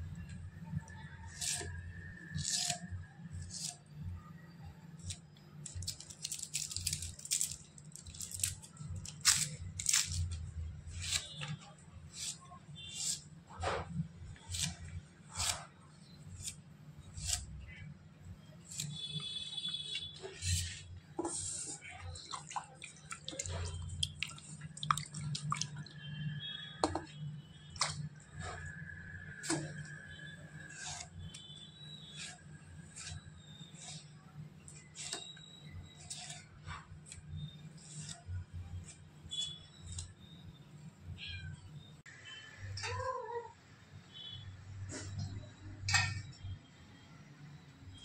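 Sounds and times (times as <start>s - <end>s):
onion being sliced crunching: 1.3s - 3.8s, 5.0s - 13.2s, 14.4s - 15.7s, 16.4s - 17.6s
onion skin rustling and tearing: 5.0s - 13.2s
water splashing in a steel bowl: 22.1s - 26.0s.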